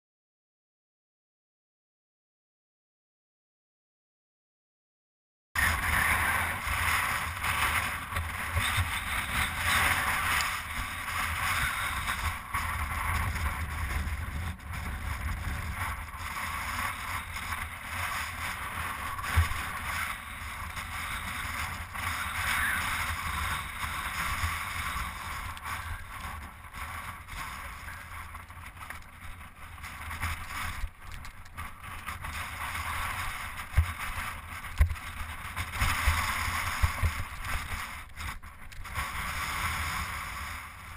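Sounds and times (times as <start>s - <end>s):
wind buffeting microphone: 5.6s - 40.9s
bike knocking over rocks: 19.2s - 39.0s.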